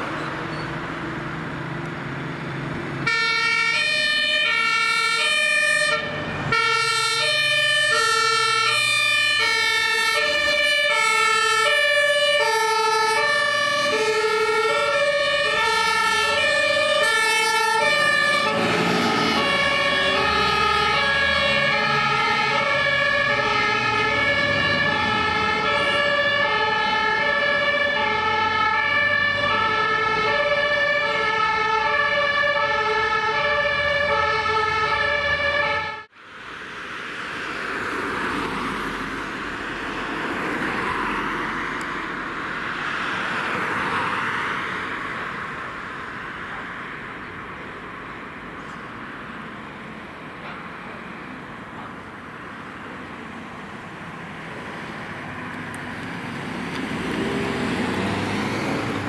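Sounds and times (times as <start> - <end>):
truck engine rumbling: 0.0 - 36.6
two-tone fire engine siren: 3.0 - 37.2, 55.5 - 59.0.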